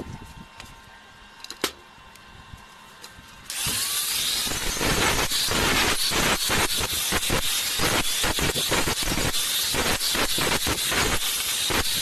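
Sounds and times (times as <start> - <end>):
angle grinder grinding metal: 3.5 - 12.0.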